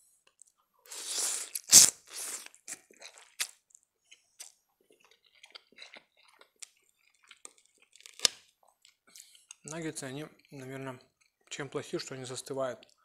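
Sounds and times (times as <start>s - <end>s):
slurping noodles: 0.9s - 3.6s
chewing with wet smacks: 2.6s - 10.6s.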